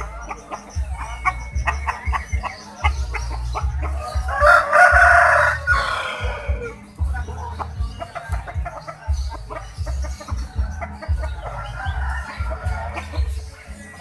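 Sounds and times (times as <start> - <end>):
rooster clucking: 0.0 - 14.0
rooster crowing: 4.0 - 6.8, 11.6 - 13.0.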